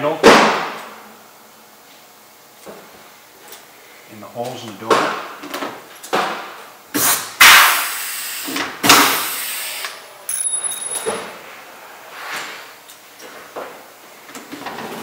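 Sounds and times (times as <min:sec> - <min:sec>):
air hiss: 0:07.0 - 0:09.9.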